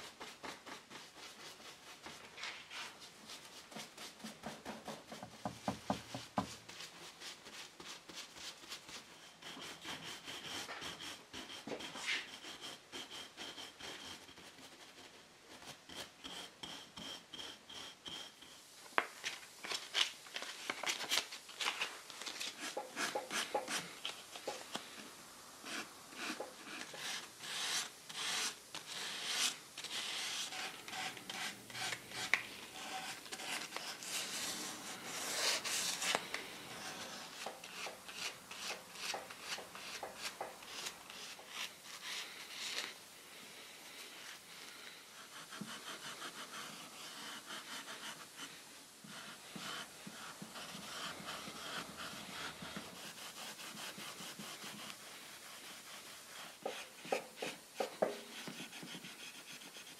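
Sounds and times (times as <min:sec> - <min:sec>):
sandpaper scraping on wood: 0:00.0 - 0:18.6, 0:21.0 - 0:24.8, 0:25.6 - 0:43.0, 0:45.2 - 0:59.9.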